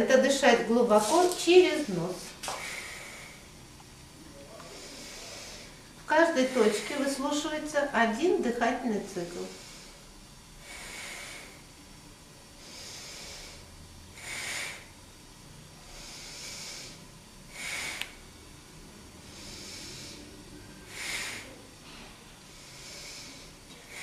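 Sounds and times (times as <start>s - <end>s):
man breathing through nose: 2.4s - 3.6s, 4.6s - 7.0s, 9.4s - 11.8s, 12.5s - 15.0s, 15.8s - 24.0s.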